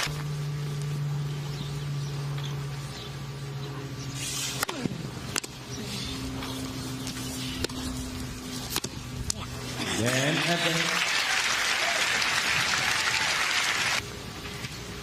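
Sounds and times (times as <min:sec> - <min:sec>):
steady low hum: 0:00.0 - 0:15.0
racket hitting tennis ball: 0:04.4 - 0:05.6, 0:07.6 - 0:09.4.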